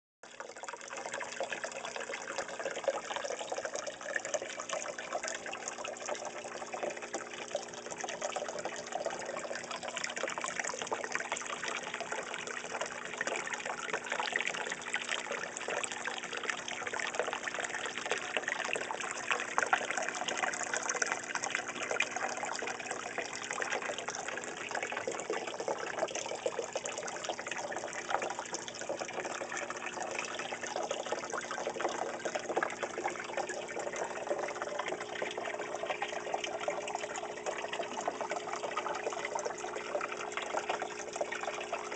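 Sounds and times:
water pouring into pond: 0.2 - 41.9.

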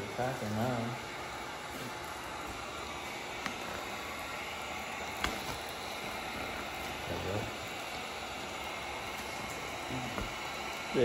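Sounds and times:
heat gun blowing: 0.0 - 11.0.

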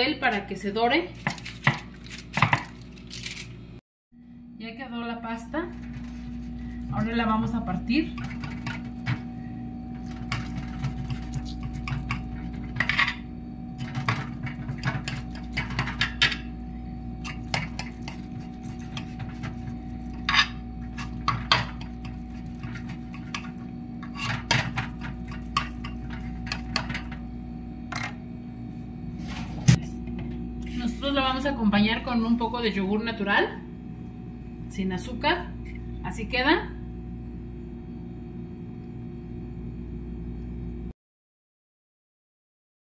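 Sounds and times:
steady low hum: 0.0 - 40.9
knife scraping glass dish: 17.3 - 24.6.

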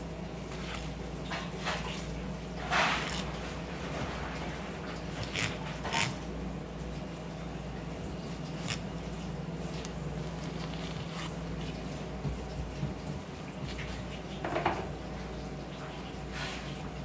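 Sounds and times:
knife scraping fish bones: 2.6 - 3.6, 5.2 - 6.2.

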